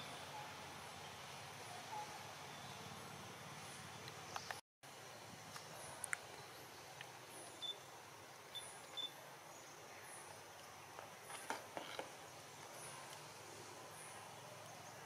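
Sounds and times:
soft steady hiss: 0.0s - 15.0s
faint repeating high chirp: 7.6s - 7.8s, 8.5s - 9.2s.

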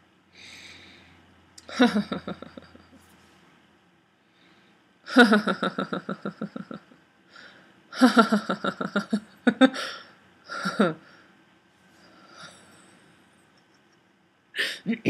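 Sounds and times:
woman laughing rhythmically: 1.6s - 3.0s, 5.1s - 7.0s, 8.0s - 11.0s.

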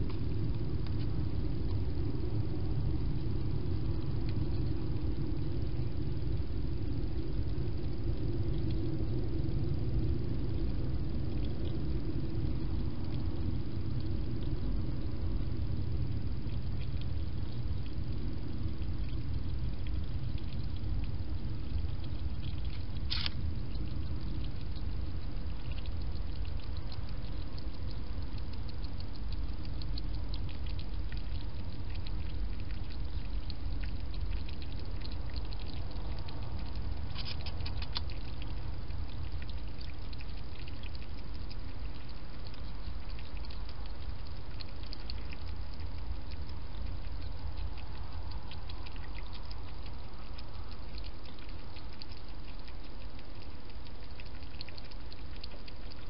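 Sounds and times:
low background noise: 0.0s - 56.0s
hedgehog lapping water: 18.7s - 56.0s.

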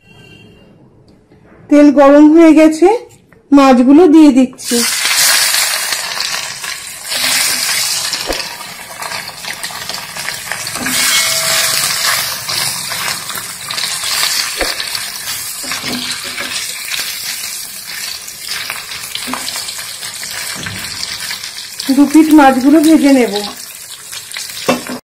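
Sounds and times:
fish sizzling in hot oil: 4.6s - 25.0s.

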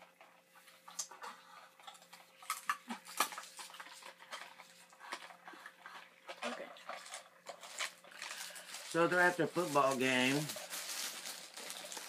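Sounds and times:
paper wrappers rustling: 7.0s - 12.0s.

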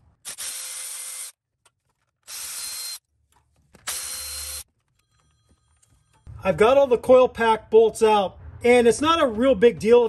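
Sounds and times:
electric ratchet motor whine: 2.3s - 3.0s, 3.9s - 4.6s.

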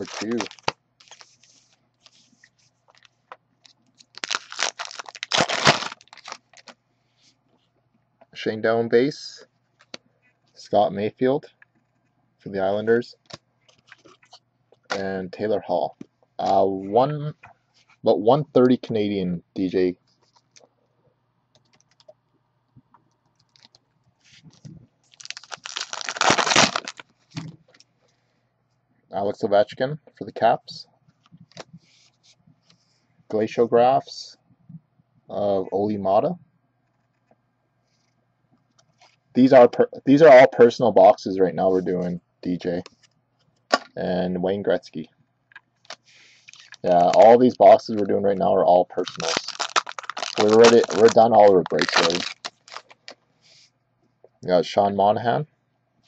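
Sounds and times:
card pack wrapper tearing: 0.0s - 1.4s, 4.0s - 6.8s, 25.1s - 27.0s, 49.0s - 53.2s.

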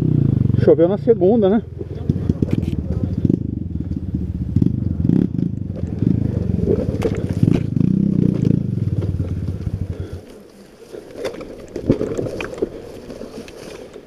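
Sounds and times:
dirt bike engine running: 0.0s - 13.8s
branches brushing the bike: 5.8s - 14.0s.

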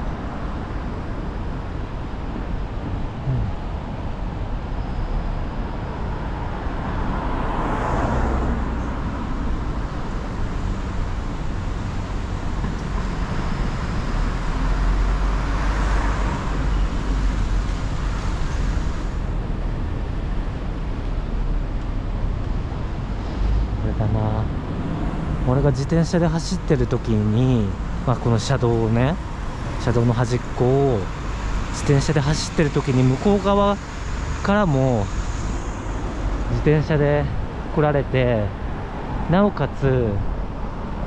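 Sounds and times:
traffic rumble: 0.0s - 41.0s
vehicles passing: 0.0s - 41.0s.

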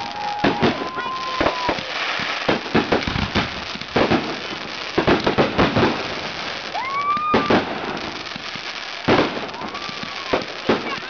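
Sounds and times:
firework whistle: 0.0s - 3.5s, 6.6s - 8.0s
fireworks bangs: 0.0s - 11.0s
fireworks crackling: 0.0s - 11.0s.

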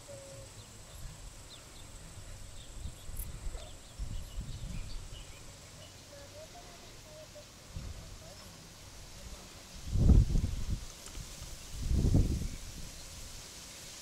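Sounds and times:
bird chirps: 0.0s - 6.5s
thin high insect tone: 0.0s - 14.0s
wind gusts on microphone: 1.0s - 5.4s, 9.0s - 13.6s.

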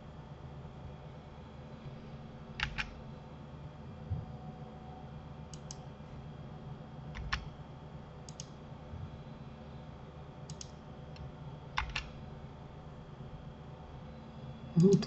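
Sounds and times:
steady low hum: 0.0s - 15.0s
mouse and keyboard clicks: 2.6s - 3.0s, 5.5s - 5.8s, 7.1s - 7.5s, 8.3s - 8.5s, 10.5s - 10.8s, 11.8s - 12.1s.

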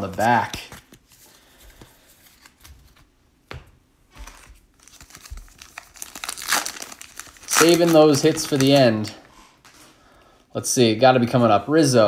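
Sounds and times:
wrapper crinkling and tearing: 4.3s - 9.2s.

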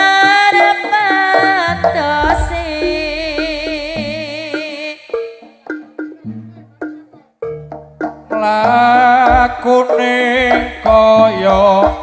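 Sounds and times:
deep drum beats: 1.2s - 4.8s, 5.7s - 12.0s
struck notes: 1.3s - 4.8s
wavering melody line: 1.4s - 4.6s.

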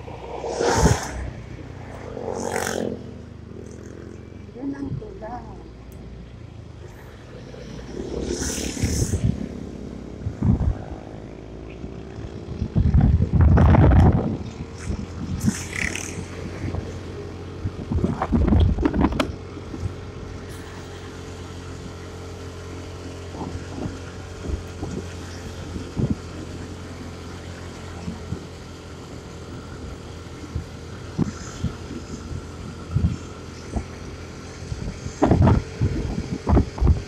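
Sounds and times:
motorcycle engine running: 0.0s - 37.0s
wind buffeting microphone: 8.6s - 11.2s, 11.9s - 20.2s, 30.5s - 37.0s.

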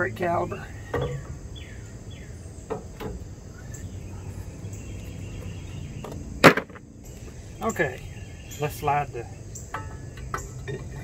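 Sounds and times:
crickets chirring: 0.0s - 11.0s
faint bird chirps: 3.5s - 6.2s, 7.0s - 10.7s.

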